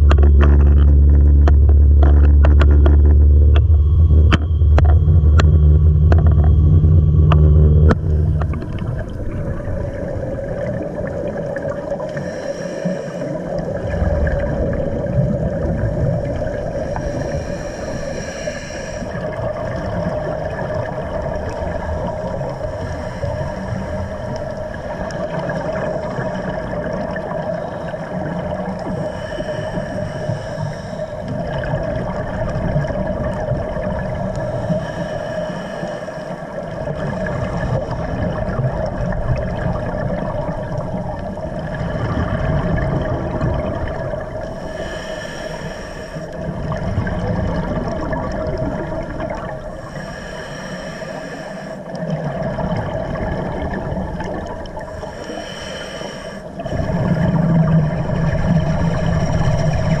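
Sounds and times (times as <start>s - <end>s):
steady hum: 0.0s - 60.0s
scuba diver breathing through regulator: 12.0s - 13.6s, 16.7s - 19.3s, 22.3s - 24.5s, 28.9s - 31.4s, 34.4s - 36.6s, 44.5s - 46.5s, 49.7s - 52.2s, 54.9s - 57.7s.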